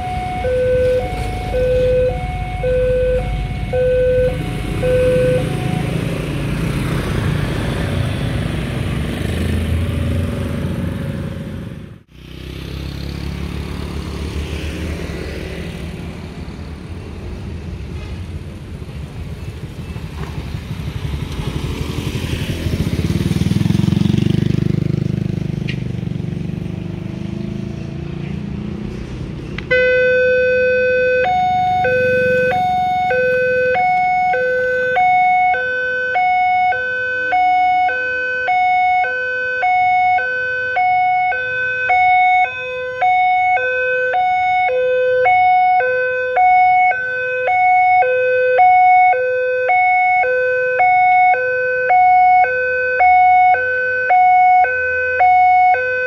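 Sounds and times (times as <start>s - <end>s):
level crossing two-tone siren: 0.0s - 6.3s, 29.7s - 56.0s.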